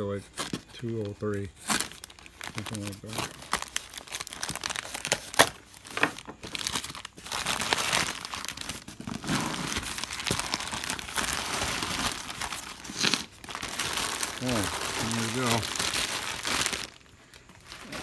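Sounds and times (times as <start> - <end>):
plastic wrapping crinkling: 0.4 - 18.0.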